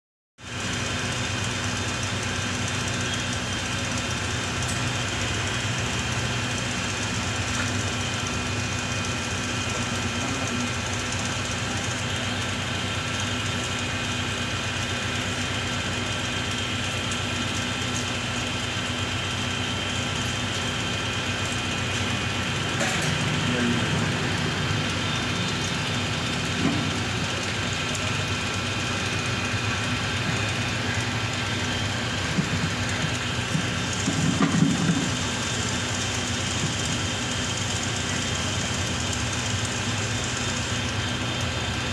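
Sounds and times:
machine hum: 0.4 - 41.9.

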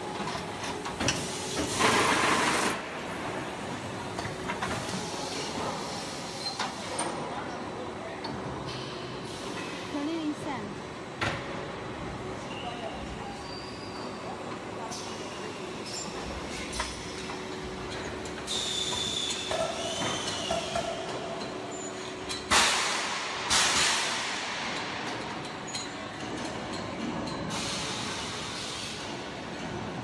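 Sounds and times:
machine high squeal: 12.5 - 14.3.

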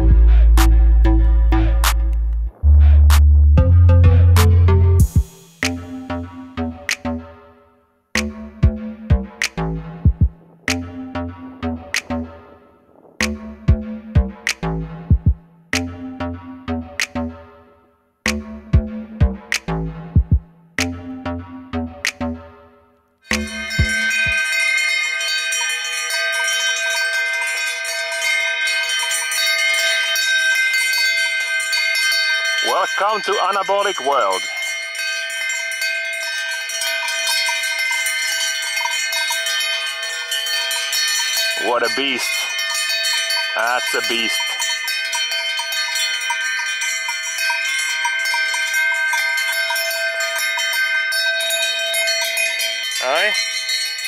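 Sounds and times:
electronic music: 0.0 - 7.5, 8.2 - 17.6, 18.3 - 22.7, 23.3 - 24.4, 32.6 - 34.6, 41.6 - 42.7, 43.6 - 44.7
cowbells jangling: 23.2 - 54.0.

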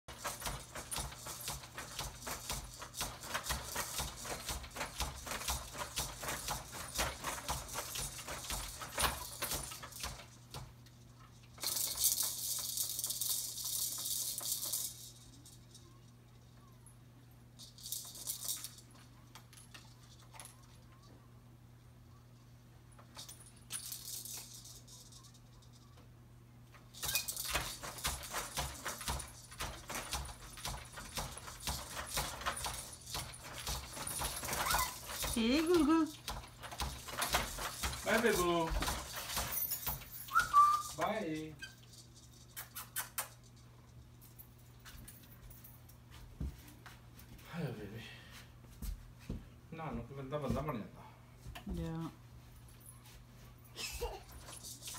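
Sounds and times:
baby jumper rattling and clicking: 0.1 - 16.6, 17.6 - 21.1, 23.0 - 25.8, 26.9 - 43.6, 53.8 - 54.9.

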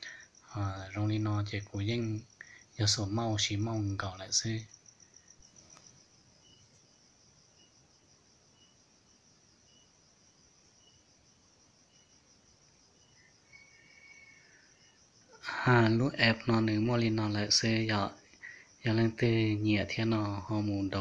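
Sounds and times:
insect pulsing trill: 0.0 - 21.0
insect short chirps: 4.4 - 15.5.

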